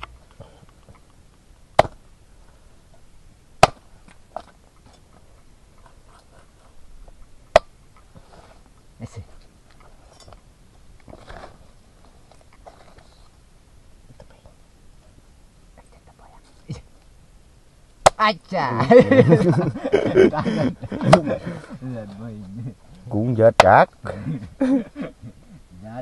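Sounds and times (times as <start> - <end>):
machete chopping on wooden board: 1.8 - 2.0, 3.6 - 3.8.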